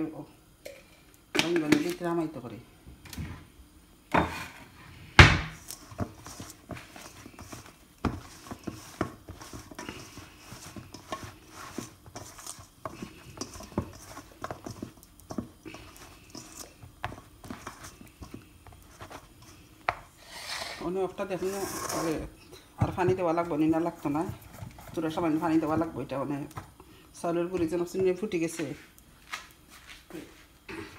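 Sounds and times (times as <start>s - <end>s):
food scraping in metal bowl: 5.6s - 26.6s.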